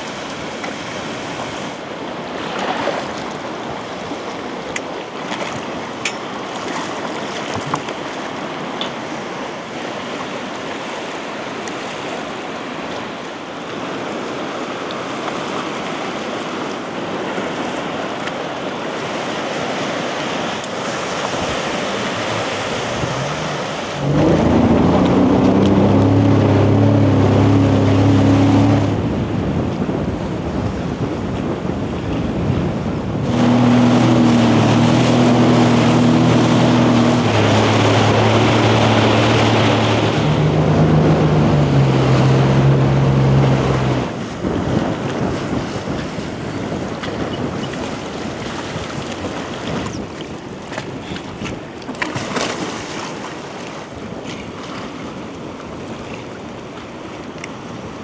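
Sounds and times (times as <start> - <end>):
sea waves washing in: 0.0 - 58.0
wind: 0.0 - 58.0
loud low hum: 22.4 - 29.6, 33.0 - 44.7.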